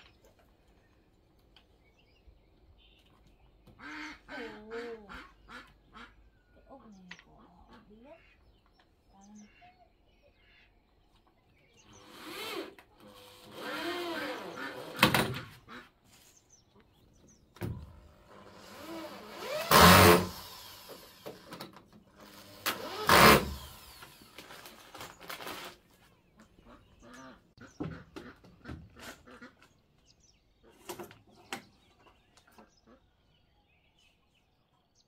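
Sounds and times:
electric drill into wood: 11.9 - 15.4, 17.7 - 25.7.

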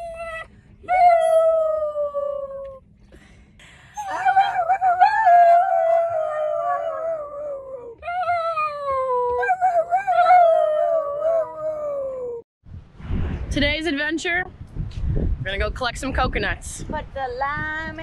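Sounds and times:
dog howling: 4.0 - 12.4.

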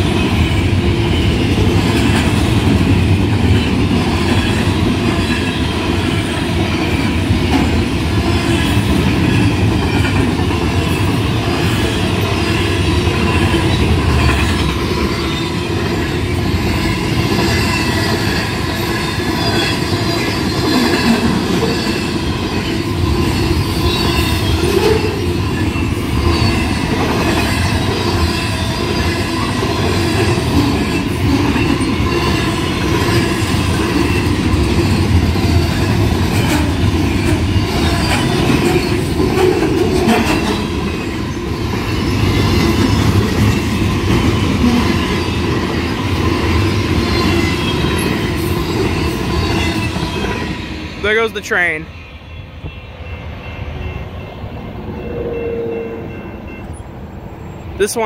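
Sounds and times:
train wheels rumbling on rail: 0.0 - 58.0
high wheel squeal: 15.0 - 30.1.

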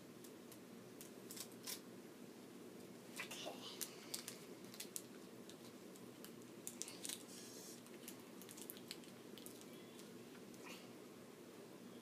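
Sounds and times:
adhesive tape crinkling: 0.2 - 1.8, 3.8 - 10.1.

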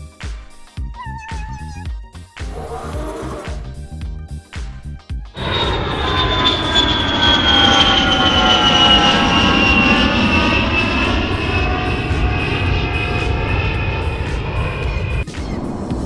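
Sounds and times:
jet engines whining and rumbling: 5.3 - 16.0.

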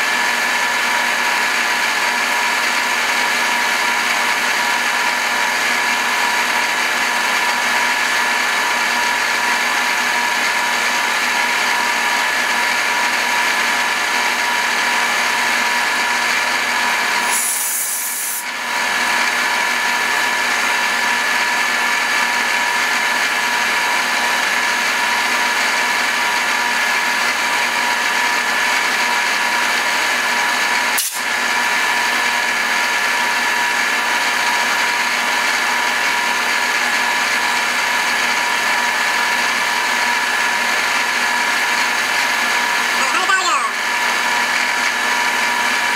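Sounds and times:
milling machine whining: 18.4 - 45.9.

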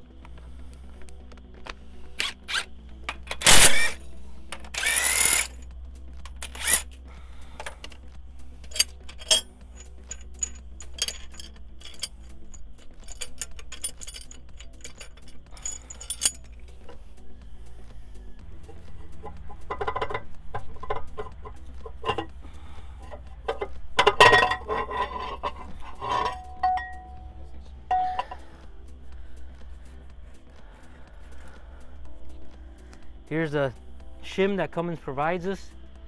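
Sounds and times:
background music: 0.0 - 36.0
clinks of steel tool parts: 1.6 - 5.6, 6.2 - 6.9, 7.6 - 8.0, 8.6 - 17.0, 18.6 - 27.3, 27.9 - 28.6
cordless drill bursts: 3.4 - 4.0, 4.7 - 5.5, 6.4 - 6.8.

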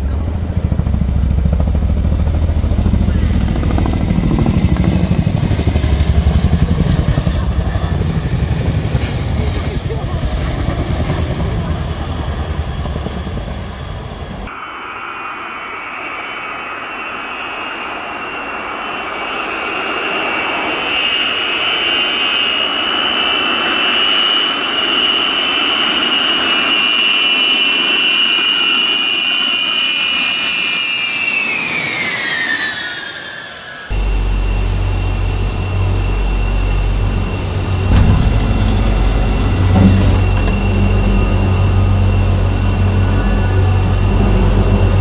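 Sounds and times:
helicopter rotor noise: 0.0 - 15.3, 25.6 - 45.0
jet engines whining: 0.0 - 45.0.

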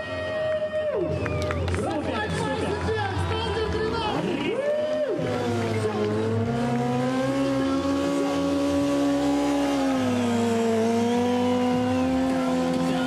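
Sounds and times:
motorcycle engine at high revs: 5.2 - 13.0.

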